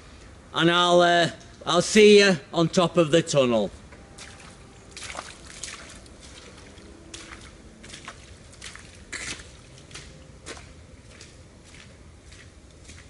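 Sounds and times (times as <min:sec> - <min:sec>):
boots squelching through mud: 0:04.1 - 0:13.0.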